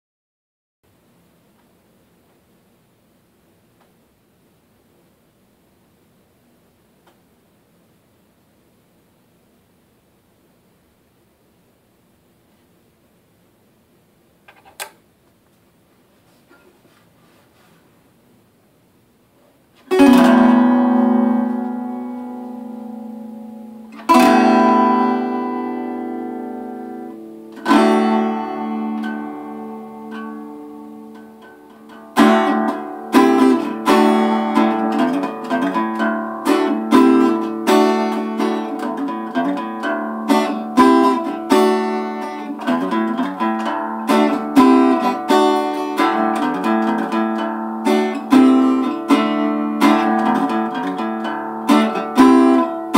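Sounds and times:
acoustic guitar chords ringing: 19.9 - 52.9
rhythmic guitar picking: 19.9 - 52.9.

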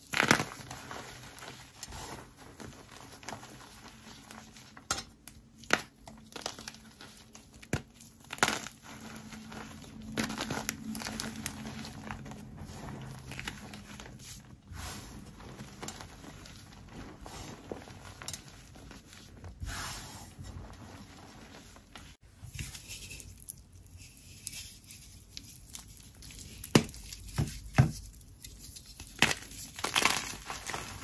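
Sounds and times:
powder rustling and crackling: 0.0 - 31.0
detergent block crunching: 29.1 - 31.0.

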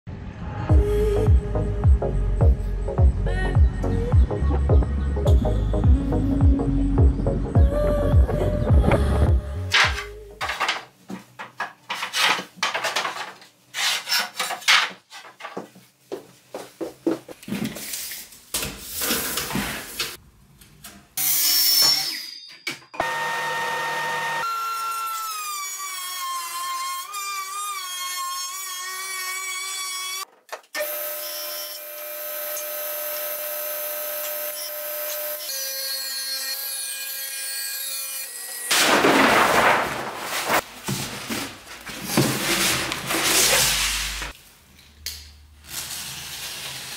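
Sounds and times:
wooden boards clattering: 9.7 - 13.4, 38.7 - 43.8
table saw cutting board: 23.0 - 30.2.

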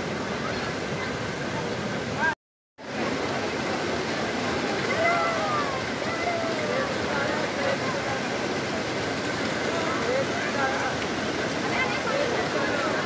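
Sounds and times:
river rushing over rocks: 0.0 - 13.0
people calling: 4.7 - 8.1.

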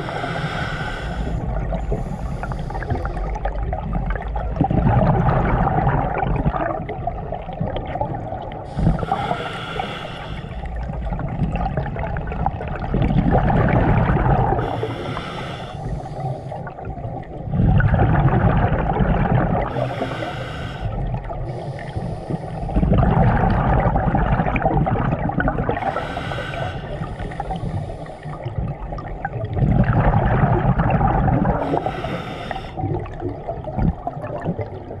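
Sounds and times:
regulator hissing inhale: 0.0 - 3.4, 8.7 - 10.7, 14.6 - 16.7, 19.7 - 22.9, 25.9 - 28.6, 31.6 - 32.8
exhaled bubbles rumbling: 0.0 - 35.0.

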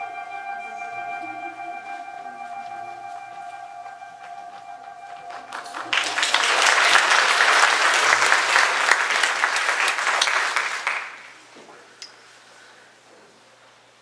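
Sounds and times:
recorded music: 0.0 - 8.0
audience applause: 5.1 - 11.4.

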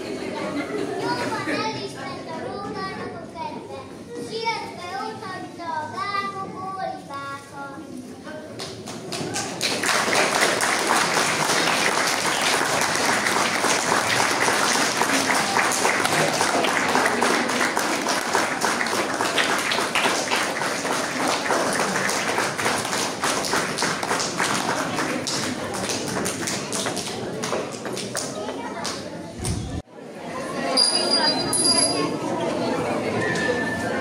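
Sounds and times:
crowd voices: 0.0 - 34.0
audience applauding: 8.7 - 28.4.

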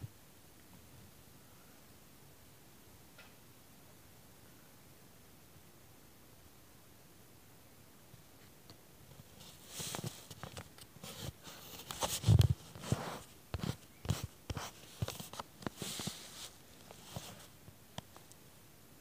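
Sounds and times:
rustling against microphone: 9.1 - 18.3.

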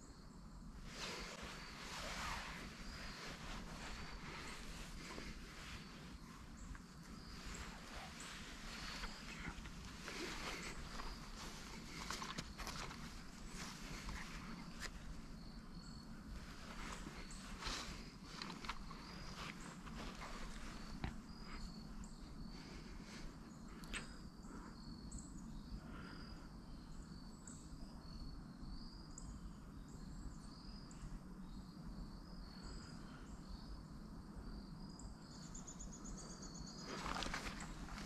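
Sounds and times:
insect chirping: 0.0 - 38.0
clothing rustle and rifle handling: 0.9 - 23.3, 36.8 - 38.0.

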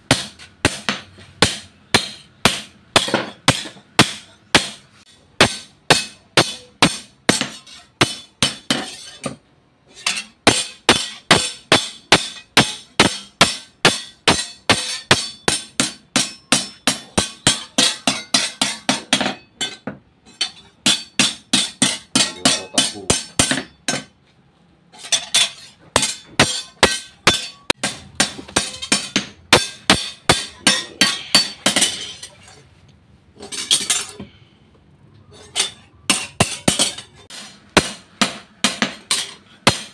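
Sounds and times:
hammer beating metal blade on anvil: 0.0 - 24.2, 25.0 - 32.2, 35.4 - 39.9.

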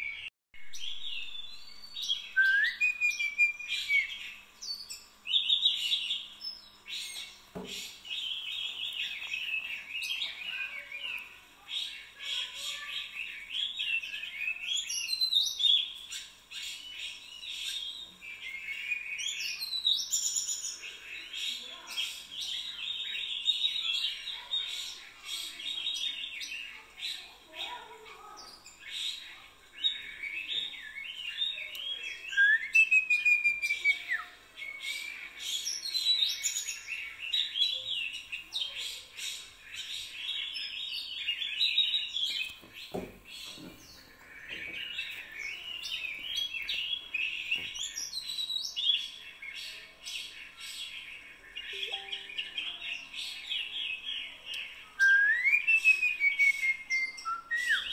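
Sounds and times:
small birds chirping: 0.0 - 57.9.

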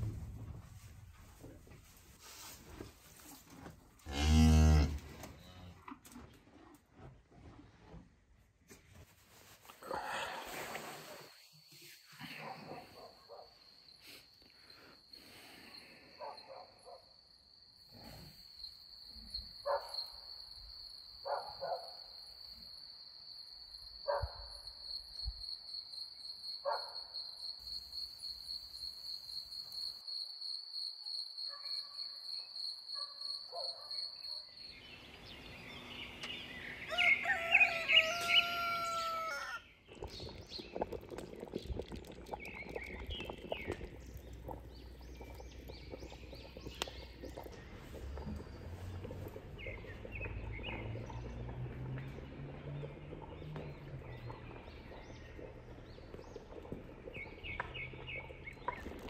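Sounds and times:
rooster crowing: 36.8 - 39.6.

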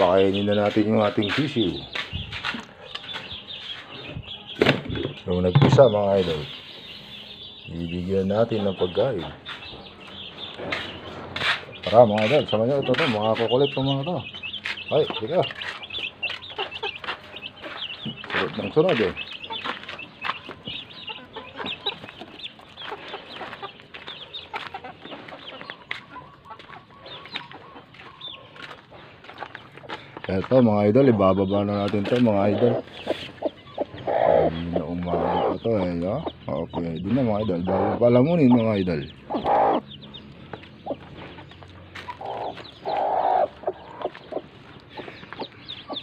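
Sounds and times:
footsteps on gravel: 0.0 - 4.5, 5.1 - 35.3, 38.1 - 46.0
chicks peeping: 0.0 - 46.0
hens clucking: 0.0 - 46.0
hen calling loudly: 32.4 - 36.3, 37.2 - 40.2, 42.0 - 44.4.

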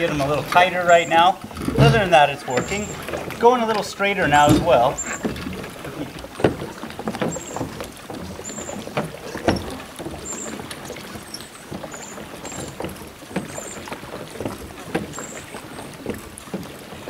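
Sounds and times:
water lapping and splashing: 0.0 - 17.0.

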